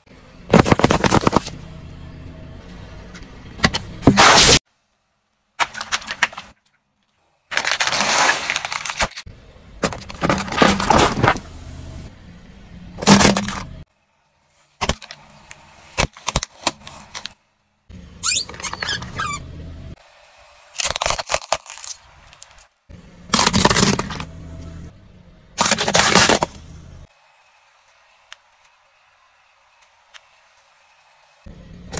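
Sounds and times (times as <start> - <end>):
tyre crushing objects: 0.5 - 1.6, 4.0 - 4.6, 9.8 - 11.5, 13.0 - 13.8, 23.3 - 24.3, 25.6 - 26.6
balloon splitting: 4.0 - 4.6.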